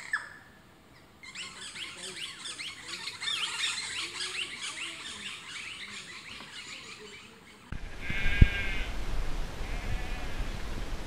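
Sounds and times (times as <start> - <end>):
birds chirping and twittering: 0.0 - 8.7
sheep bleating: 8.0 - 8.9, 9.6 - 10.4.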